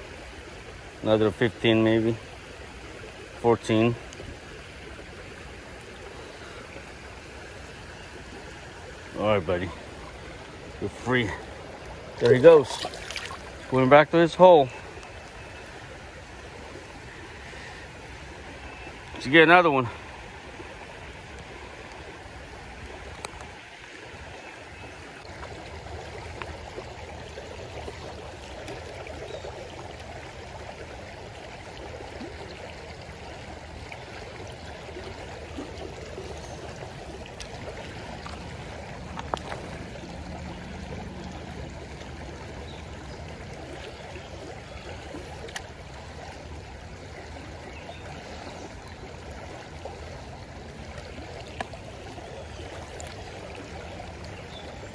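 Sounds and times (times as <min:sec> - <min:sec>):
creek water running over rocks: 0:00.0 - 0:54.9.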